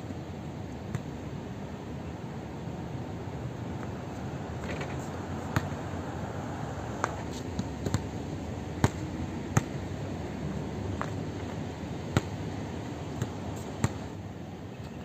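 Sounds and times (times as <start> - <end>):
steady background hum: 0.0 - 15.0
basketball bouncing on hard court: 5.5 - 5.8, 7.0 - 8.1, 12.1 - 12.4, 13.2 - 14.1.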